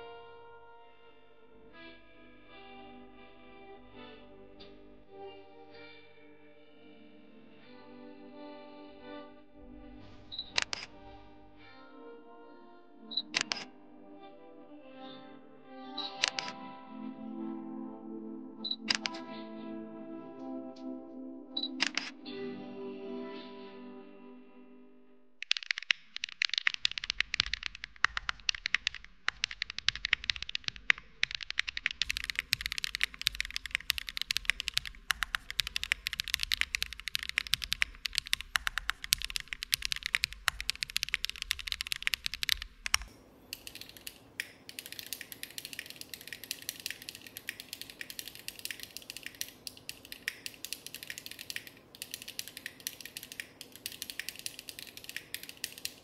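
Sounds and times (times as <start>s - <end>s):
mechanical keyboard typing: 16.2s - 16.5s, 18.7s - 19.2s, 21.6s - 22.1s, 25.4s - 56.0s.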